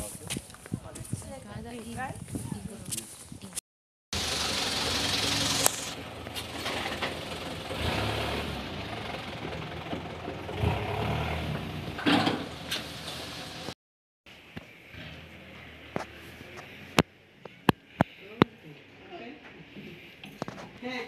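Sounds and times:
vehicle engine running: 4.1s - 12.7s.

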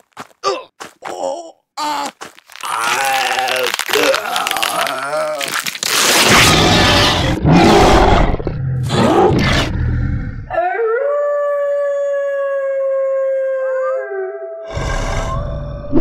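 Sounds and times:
creature growling: 1.8s - 10.7s, 14.6s - 16.0s
wolf-like howl: 10.5s - 16.0s.

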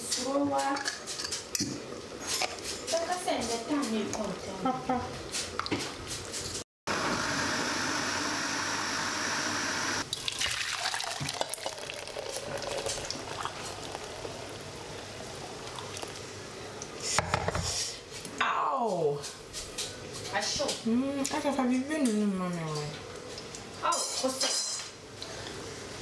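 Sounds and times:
blender running: 6.9s - 12.7s
liquid pouring and dripping: 10.0s - 16.3s.

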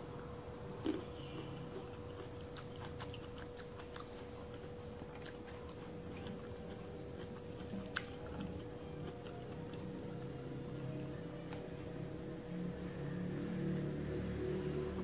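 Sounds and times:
faint hum: 0.0s - 15.0s
eating fruit clicks and smacks: 0.8s - 10.0s.

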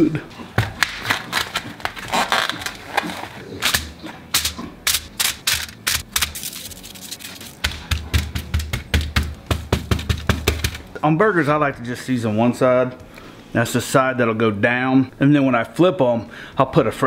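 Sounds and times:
shaker bottle rattling: 4.4s - 9.1s.

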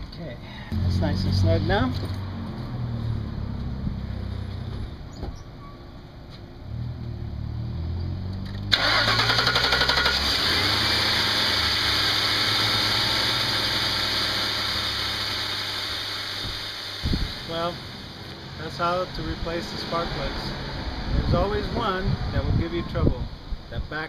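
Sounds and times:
car engine cranking and idling: 0.7s - 5.2s, 8.2s - 20.5s.

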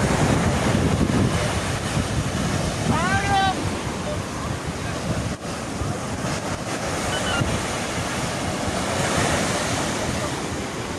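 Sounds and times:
surf washing on beach: 0.0s - 10.9s.

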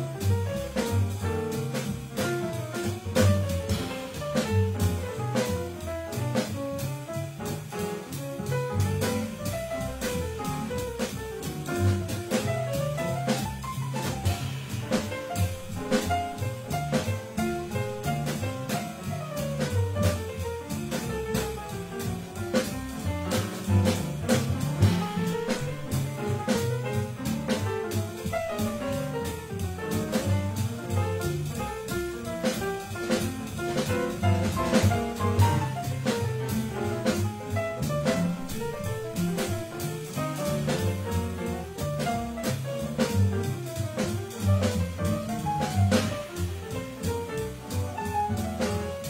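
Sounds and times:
drum kit: 0.0s - 49.0s
grand piano: 0.0s - 49.0s
plucked double bass: 0.0s - 49.0s.

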